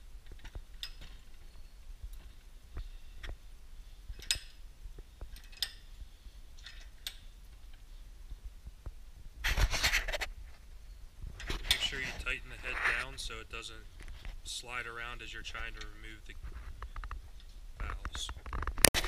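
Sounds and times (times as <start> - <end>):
scraping rustle: 9.4 - 10.7, 11.3 - 19.0.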